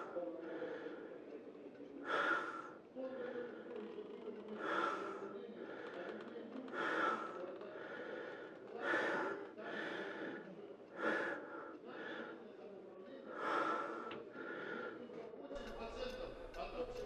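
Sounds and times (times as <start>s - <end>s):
person breathing heavily: 2.0s - 2.8s, 4.6s - 6.0s, 6.7s - 12.4s, 13.3s - 15.0s.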